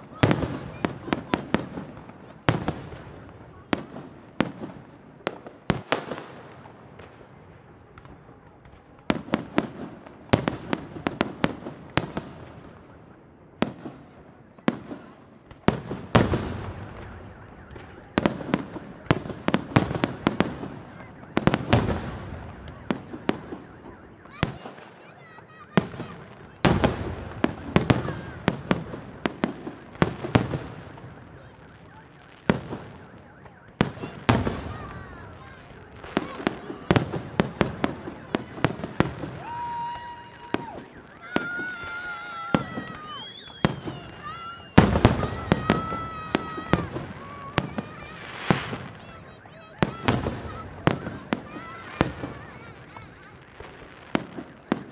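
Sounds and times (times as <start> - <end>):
fireworks bursting with sharp bangs: 0.0 - 54.9.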